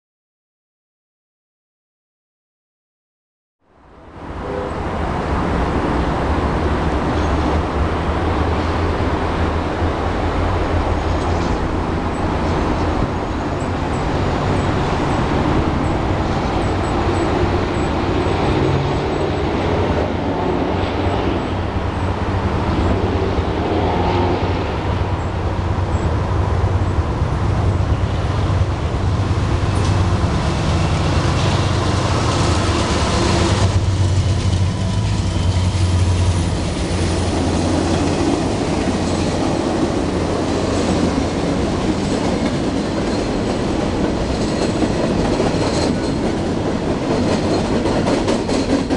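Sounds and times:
outdoor city noise: 3.6s - 48.9s
diesel locomotives rumbling: 4.0s - 48.9s.

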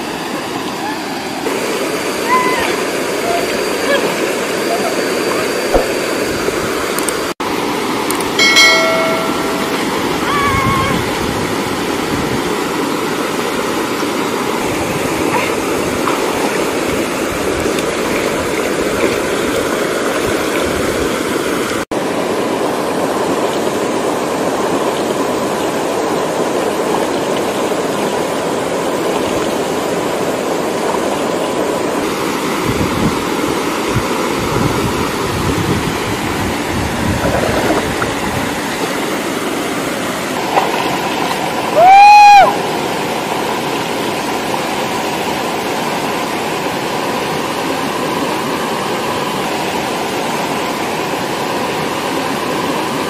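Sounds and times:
water splashes: 0.0s - 32.5s, 35.1s - 41.9s
waterfall rushing into pool: 0.0s - 53.0s.

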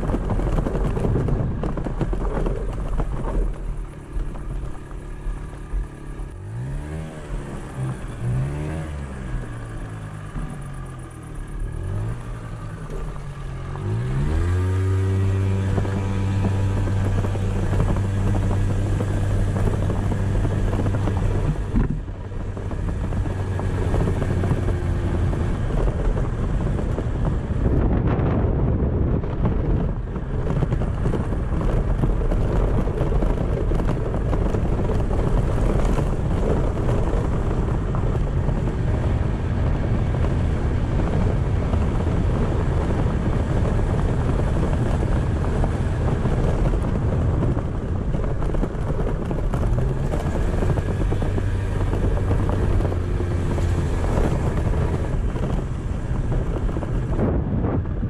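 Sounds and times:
tyres on gravel: 0.0s - 27.8s
engine revving: 0.0s - 28.2s, 29.7s - 57.8s
wind on microphone: 0.0s - 58.0s.

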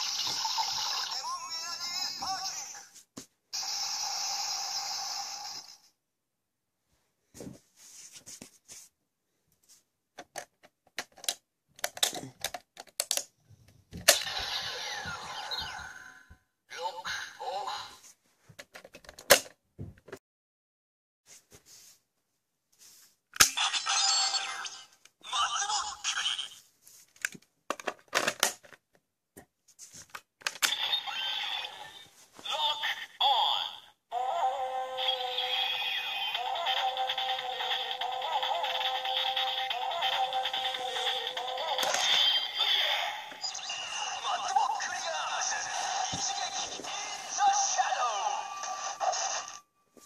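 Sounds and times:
toy belt electronic sound effect: 0.0s - 2.8s, 3.6s - 5.9s, 14.1s - 16.1s, 30.6s - 32.0s, 33.5s - 49.6s
hard plastic clicks and snaps: 10.2s - 13.3s
plastic toy clicks and rattles: 10.2s - 13.3s, 36.4s - 42.5s.

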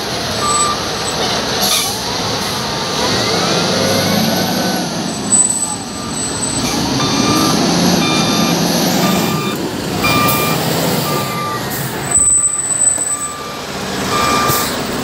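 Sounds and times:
diesel engine running: 0.0s - 15.0s
reversing alarm beeping: 0.4s - 0.8s, 5.3s - 15.0s.

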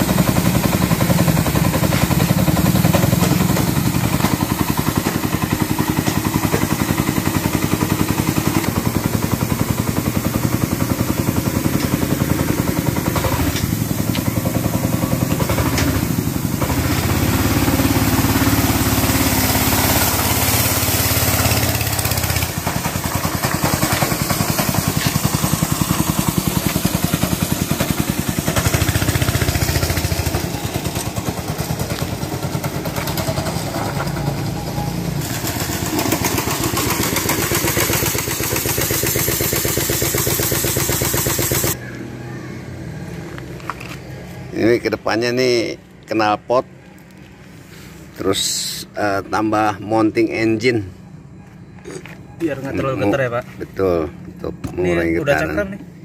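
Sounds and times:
go-kart engine running: 0.0s - 42.8s.

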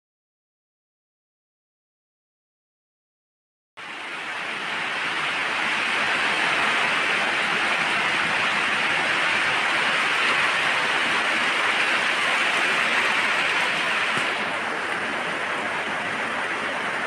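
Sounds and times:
heavy rain pouring: 3.8s - 17.0s.

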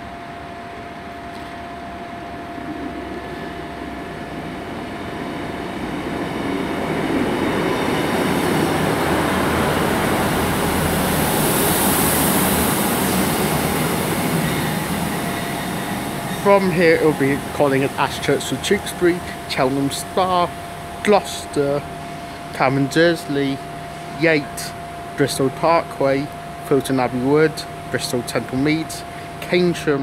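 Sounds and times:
diesel train engines and wheels: 0.0s - 30.0s
high hiss: 9.9s - 24.8s.

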